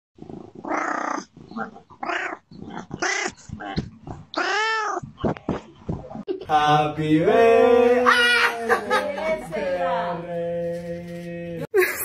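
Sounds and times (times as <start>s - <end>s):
cat meowing: 2.0s - 5.1s.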